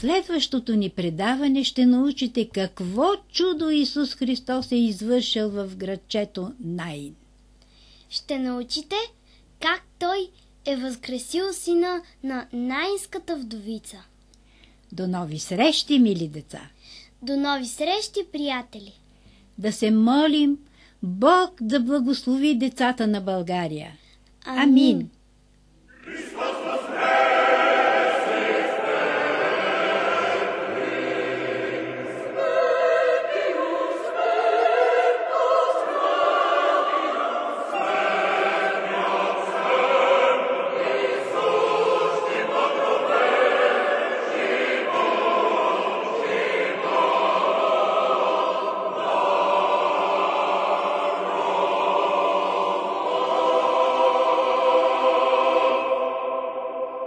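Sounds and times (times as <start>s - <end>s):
choir singing slow chords: 25.9s - 57.0s.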